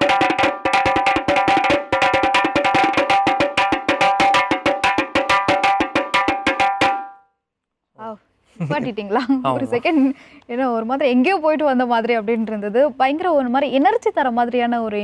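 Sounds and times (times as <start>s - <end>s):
frame drum beaten with sticks: 0.0s - 7.2s.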